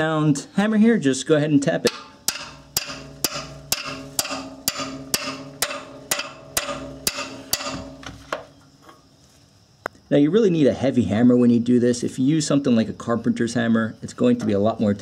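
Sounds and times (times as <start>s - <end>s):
wrench ringing: 1.8s - 8.1s
hammer tapping metal wrench: 1.8s - 8.2s.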